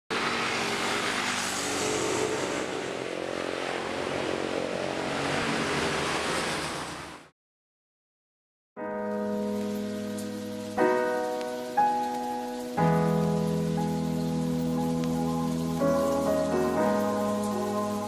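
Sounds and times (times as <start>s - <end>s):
passing cars and motorbikes: 0.1s - 7.3s, 12.4s - 18.0s.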